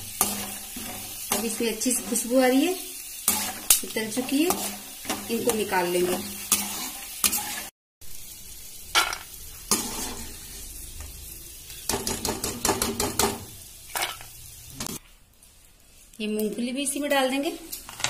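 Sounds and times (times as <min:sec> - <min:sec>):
peanuts sizzling in hot oil: 0:00.0 - 0:18.0
metal spoon scraping and clinking: 0:06.5 - 0:07.7.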